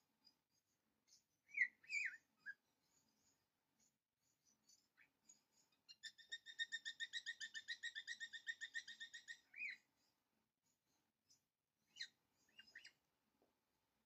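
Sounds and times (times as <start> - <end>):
faint bird chirps: 0.0 - 13.1
bird singing rapid trill: 1.1 - 3.4, 4.4 - 9.9, 11.9 - 13.0.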